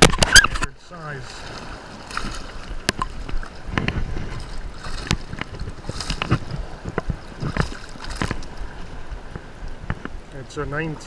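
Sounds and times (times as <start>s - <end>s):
fish thrashing and splashing: 0.0s - 10.3s
water sloshing: 0.0s - 11.0s.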